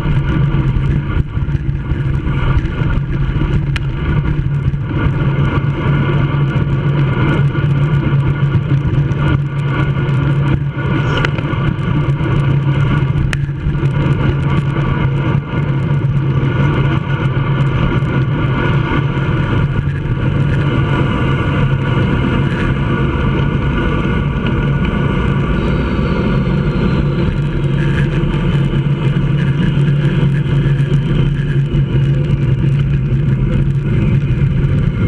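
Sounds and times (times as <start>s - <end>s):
bike tyres rolling on asphalt: 0.0s - 35.0s
low hum: 0.0s - 35.0s
wind rushing over microphone: 0.0s - 35.0s.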